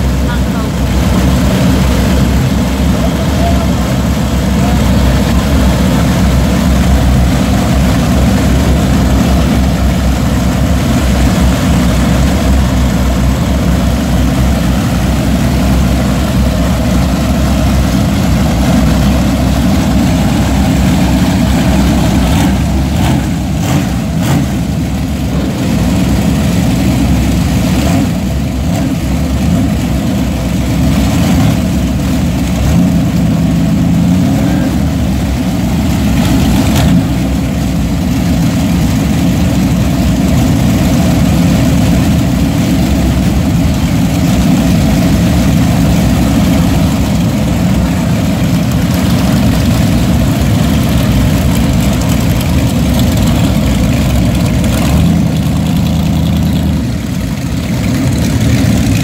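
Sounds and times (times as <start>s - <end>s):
motorcycles idling: 0.0s - 59.0s.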